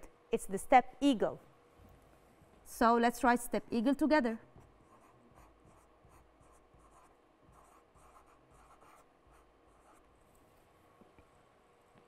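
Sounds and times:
marker scratching on board: 4.8s - 10.1s.

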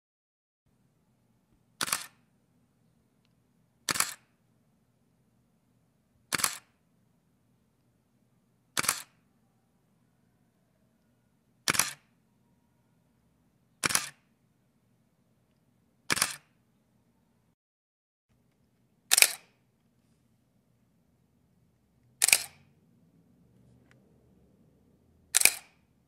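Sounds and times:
camera shutter double click: 1.8s - 2.2s, 3.9s - 4.3s, 6.3s - 6.7s, 8.8s - 9.2s, 11.7s - 12.1s, 13.8s - 14.2s, 16.1s - 16.5s, 19.1s - 19.6s, 22.2s - 22.7s, 25.4s - 25.8s.

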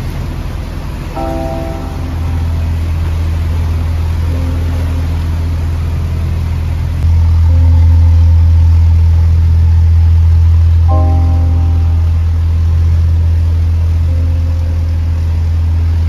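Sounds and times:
diesel engine humming: 0.0s - 16.0s.

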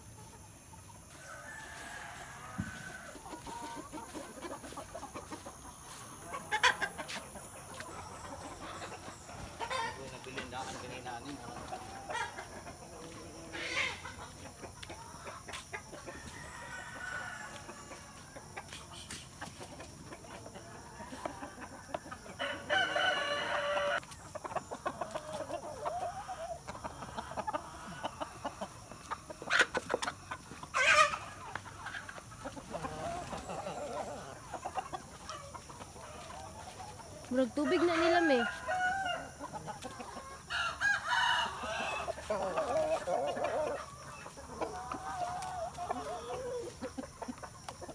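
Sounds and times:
hens clucking: 0.0s - 47.9s
rooster crowing: 1.1s - 3.4s, 16.1s - 18.2s, 22.4s - 24.0s, 37.3s - 39.4s, 40.4s - 43.7s.

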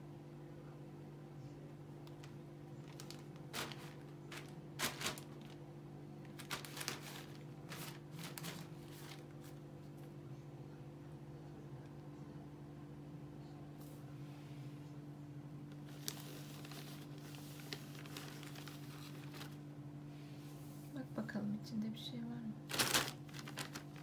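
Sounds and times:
steady low hum: 0.0s - 24.0s
plastic bags rustling: 2.0s - 9.7s, 15.7s - 19.6s, 22.6s - 24.0s.

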